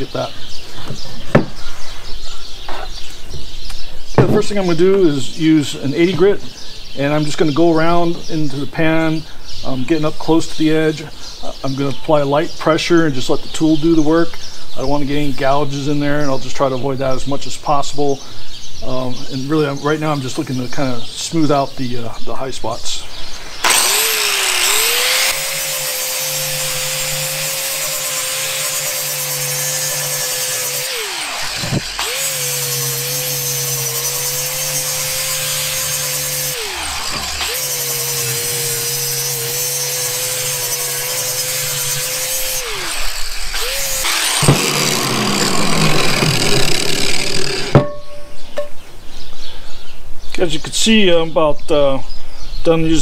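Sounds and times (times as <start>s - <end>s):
knocks: 0.9s - 1.6s
angle grinder grinding cast iron: 23.1s - 48.8s.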